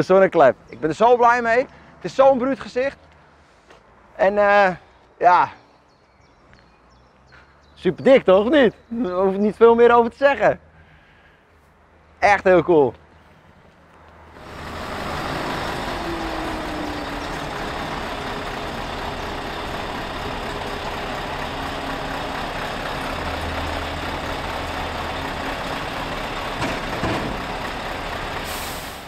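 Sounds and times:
truck engine running: 0:14.3 - 0:29.0.

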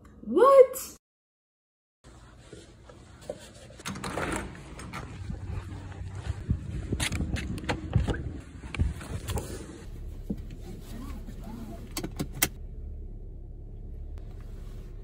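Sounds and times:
low hum in car cabin: 0:07.6 - 0:15.0.

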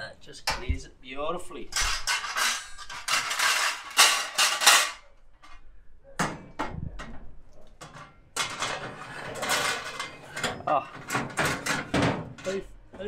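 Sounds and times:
metal tray scraping and clattering: 0:01.7 - 0:05.0, 0:07.8 - 0:12.6
metal clanks against cabinet: 0:07.8 - 0:12.6.

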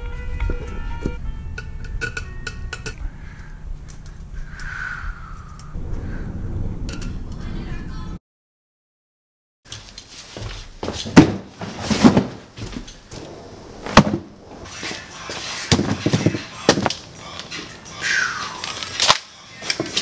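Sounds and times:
cardboard rustling and scraping: 0:09.8 - 0:16.9
boxes knocking on concrete floor: 0:10.8 - 0:12.9, 0:13.9 - 0:14.3, 0:15.7 - 0:16.9.

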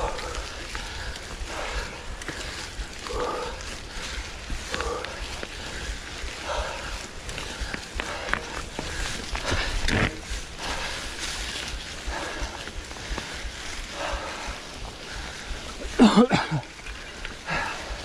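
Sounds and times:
bike tyres rolling over dry leaves: 0:00.0 - 0:18.0
person breathing hard: 0:00.0 - 0:18.0
person grunting: 0:15.9 - 0:16.6.

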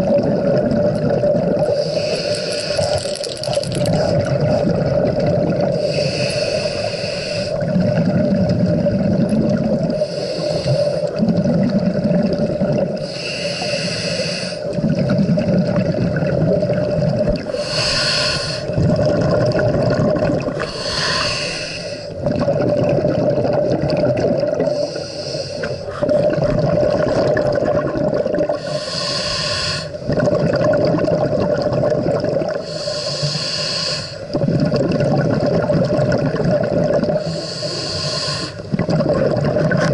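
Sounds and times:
exhalation bubbling rush: 0:00.0 - 0:13.2, 0:14.5 - 0:25.0, 0:25.6 - 0:33.2, 0:34.2 - 0:39.9
regulator inhalation hiss: 0:01.7 - 0:03.2, 0:05.8 - 0:07.6, 0:10.0 - 0:11.2, 0:13.0 - 0:14.7, 0:17.5 - 0:18.7, 0:20.6 - 0:22.2, 0:24.7 - 0:26.1, 0:28.6 - 0:30.0, 0:32.6 - 0:34.3, 0:37.2 - 0:38.7.

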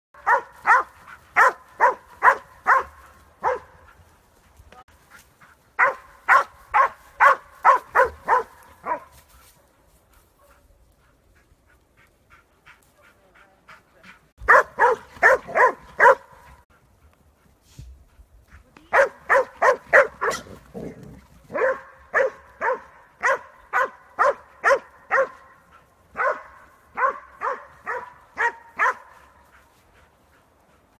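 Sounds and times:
dog barking: 0:00.2 - 0:03.9, 0:05.8 - 0:09.1, 0:14.4 - 0:16.6, 0:18.9 - 0:20.6, 0:21.5 - 0:29.4.

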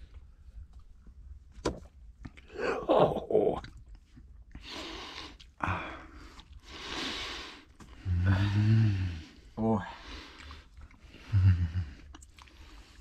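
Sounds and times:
people chewing food: 0:02.2 - 0:13.0
low grunt: 0:02.5 - 0:03.7, 0:08.0 - 0:09.3, 0:11.2 - 0:12.1
breathy exhales: 0:04.6 - 0:13.0.

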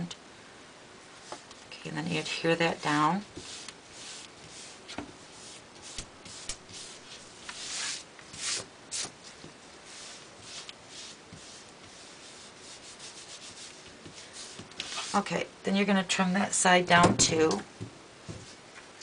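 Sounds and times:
fingertips rubbing paper: 0:02.6 - 0:09.1, 0:09.8 - 0:15.2.

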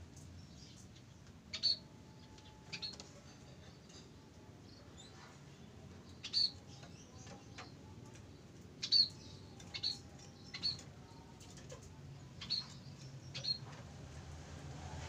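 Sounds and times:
bird chirps: 0:08.8 - 0:10.9, 0:12.4 - 0:13.7.

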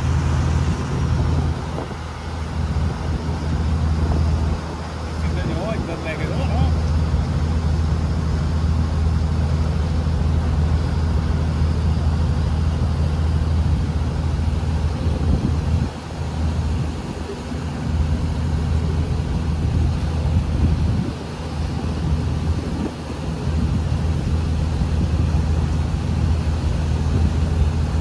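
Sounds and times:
boat engine humming: 0:00.0 - 0:28.0
wind and water hiss: 0:00.0 - 0:28.0.

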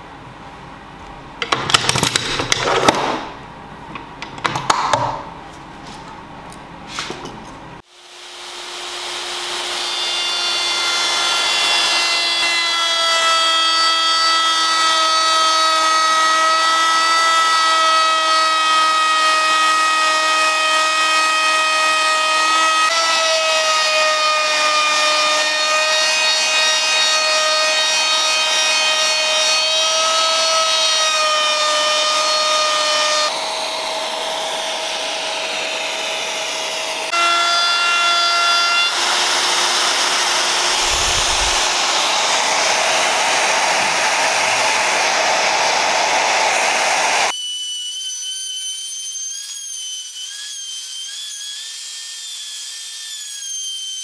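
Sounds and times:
router motor whine cutting wood: 0:07.9 - 0:28.9, 0:29.7 - 0:48.1.

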